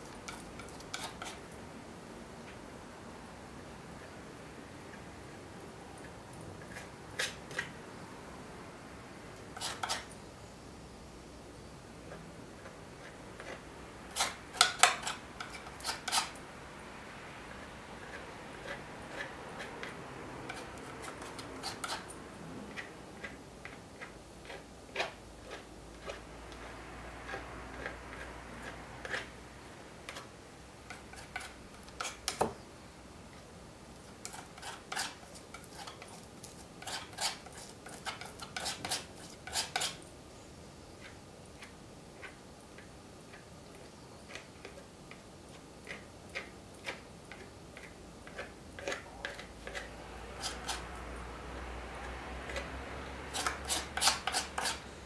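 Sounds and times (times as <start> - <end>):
palette knife scraping paint: 0.2 - 1.5, 6.0 - 7.8, 9.5 - 10.1, 12.1 - 16.4, 17.5 - 29.4, 30.9 - 32.4, 34.0 - 40.0, 41.0 - 51.0, 52.0 - 55.0.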